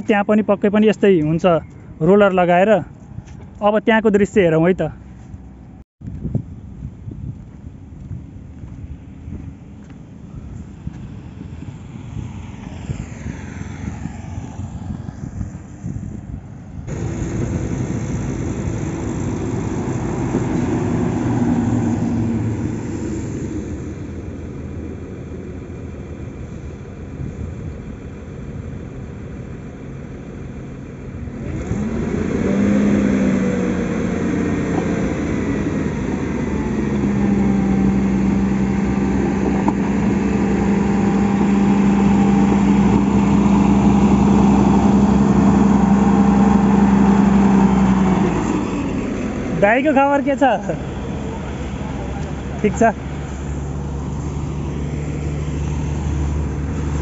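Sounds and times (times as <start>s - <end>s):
diesel engine of grader running: 0.0s - 57.0s.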